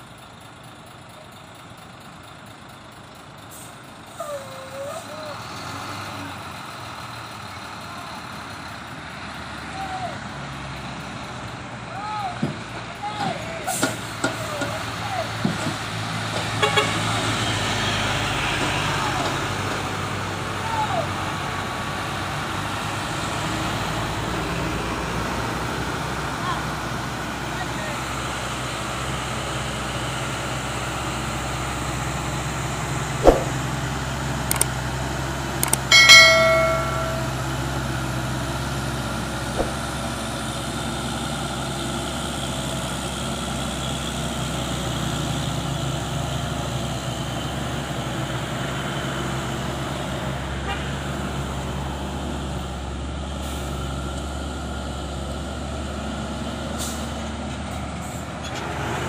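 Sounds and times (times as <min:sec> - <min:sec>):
truck diesel engines running: 0:00.0 - 0:59.0
sharp knock: 0:33.2 - 0:33.6, 0:39.6 - 0:39.8.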